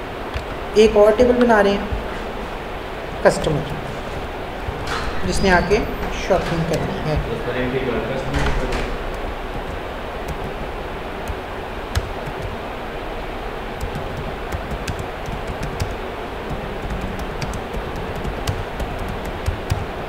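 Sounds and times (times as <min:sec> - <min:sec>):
background hiss: 0:00.0 - 0:20.0
keyboard typing clicks: 0:08.3 - 0:12.6, 0:13.8 - 0:20.0.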